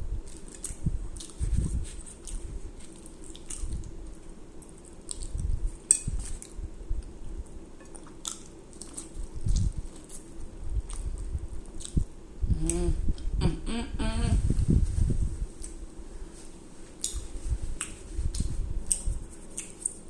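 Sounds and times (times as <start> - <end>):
chewing and wet mouth noises: 0.2 - 12.1, 16.4 - 20.0.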